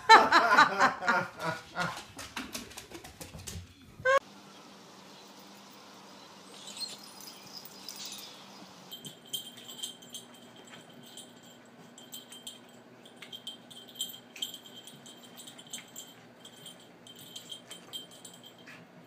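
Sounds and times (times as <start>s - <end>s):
pet collar jingling: 6.5s - 18.8s.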